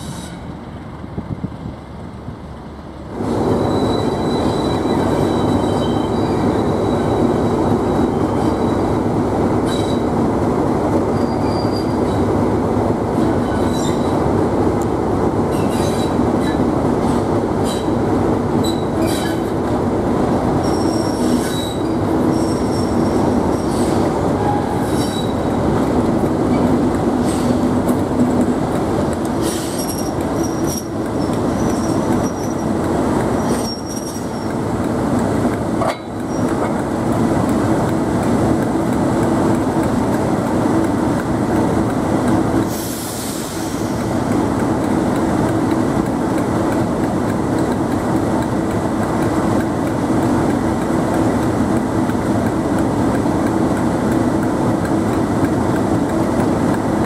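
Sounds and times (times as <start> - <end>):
train wheels squealing: 0.0 - 0.5, 3.4 - 10.1, 11.1 - 12.3, 13.2 - 14.2, 15.5 - 18.0, 18.6 - 19.6, 20.6 - 25.6, 29.4 - 32.8, 33.4 - 34.7, 36.2 - 36.6
diesel locomotive engines droning: 0.0 - 57.0.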